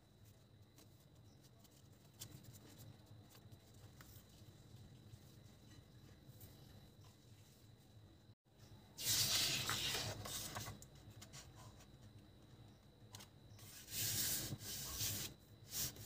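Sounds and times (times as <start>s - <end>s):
paper rustling and sliding: 9.0s - 11.8s, 13.2s - 16.0s.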